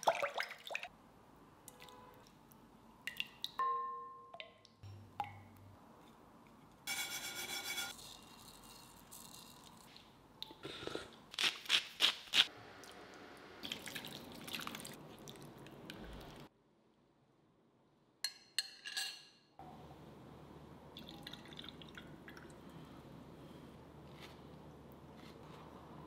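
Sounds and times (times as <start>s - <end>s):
liquid sloshing: 13.6s - 16.4s.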